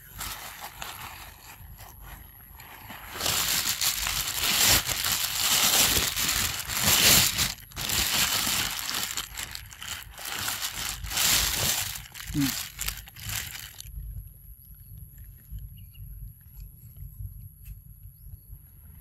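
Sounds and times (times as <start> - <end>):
crinkling and crunching rustle: 0.0 - 14.1.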